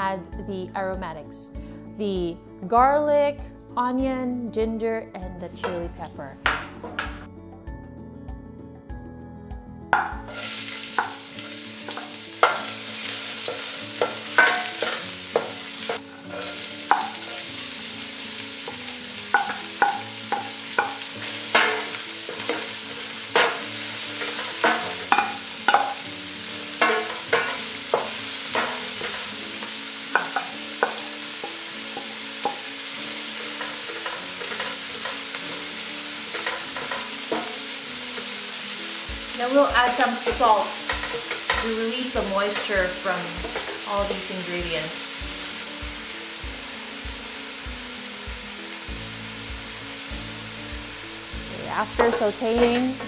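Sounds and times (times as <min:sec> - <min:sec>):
food sizzling in hot oil: 0:10.0 - 0:53.0
wooden spoon scraping a pan: 0:11.9 - 0:17.6, 0:26.8 - 0:35.6, 0:36.2 - 0:38.4, 0:39.9 - 0:44.1.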